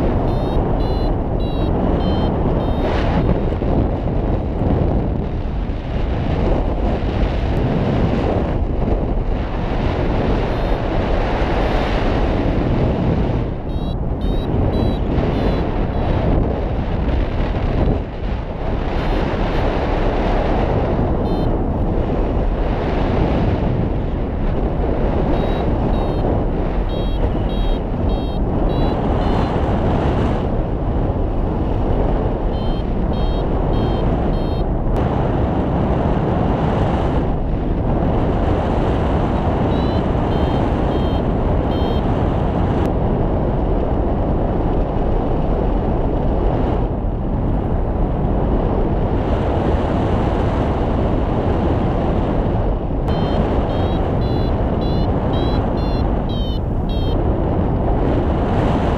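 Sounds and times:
variometer beeping: 0.0s - 3.4s, 10.3s - 10.9s, 13.5s - 16.4s, 18.8s - 19.9s, 21.2s - 21.9s, 25.0s - 29.8s, 32.0s - 34.7s, 39.6s - 42.2s, 53.1s - 57.2s
wind rushing over microphone: 0.0s - 58.9s.

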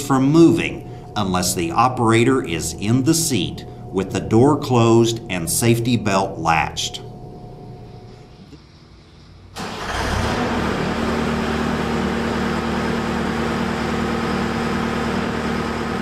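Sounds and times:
diesel engine humming: 9.6s - 16.0s.

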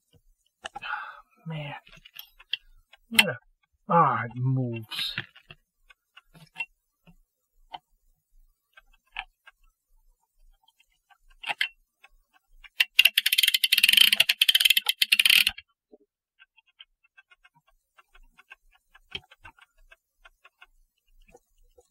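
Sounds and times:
rapid metallic clicking and rattling: 12.4s - 15.6s.

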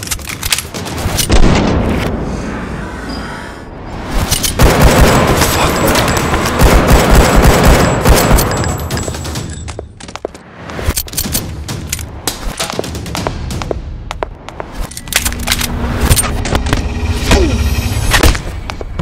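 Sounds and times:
rapid pistol gunfire: 4.6s - 5.4s, 6.5s - 8.4s.

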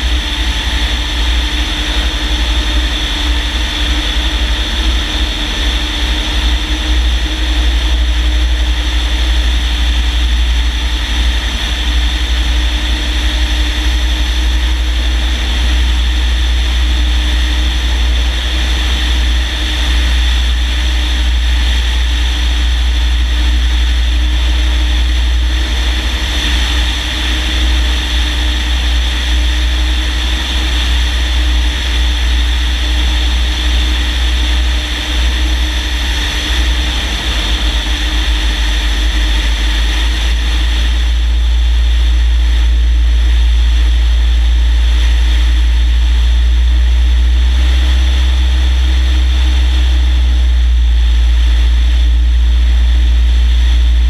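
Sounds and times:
propeller aircraft engine: 0.0s - 54.0s
wind rumble on microphone: 0.0s - 54.0s.

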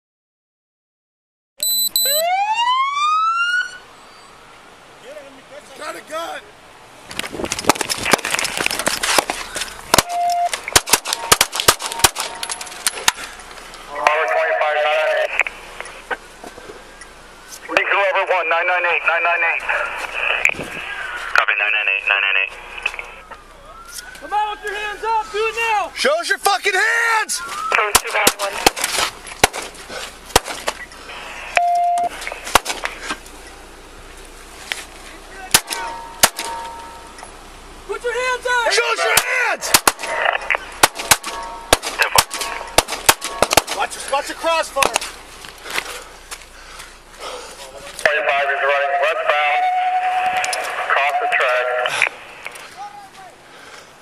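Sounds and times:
brief steady beep: 1.6s - 2.3s, 10.0s - 12.6s, 31.5s - 32.2s
sharp cracks or knocks: 7.1s - 13.3s, 28.0s - 30.8s, 32.5s - 33.0s, 35.5s - 36.6s, 39.2s - 40.2s, 40.8s - 43.8s
handgun shots: 9.9s - 12.4s, 30.3s - 30.6s, 39.2s - 40.2s, 40.8s - 43.8s.

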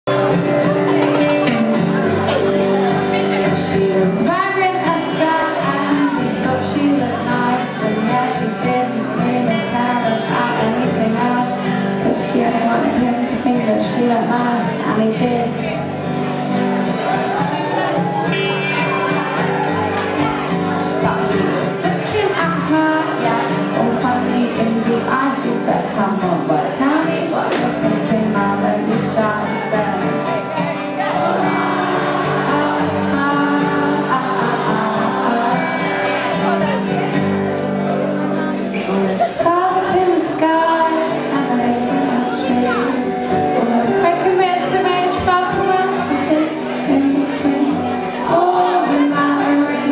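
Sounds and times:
guitar accompaniment: 0.0s - 49.9s
woman singing into a microphone: 3.4s - 16.3s, 21.0s - 37.0s, 38.3s - 49.9s
instrumental accompaniment: 16.1s - 22.3s.

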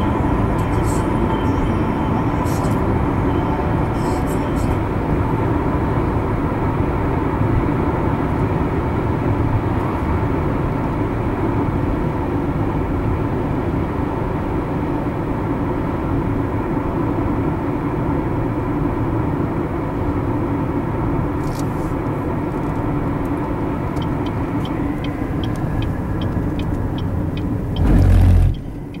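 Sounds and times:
road and tyre noise in car: 0.0s - 29.0s
light ticking: 24.0s - 27.9s.

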